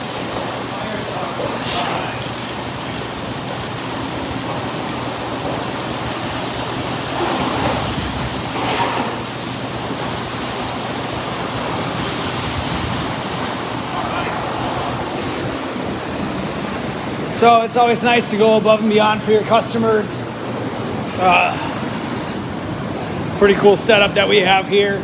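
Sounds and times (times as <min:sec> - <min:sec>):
water jetting from hose nozzle: 0:00.0 - 0:17.3
water splashing on tiled floor: 0:00.0 - 0:17.4.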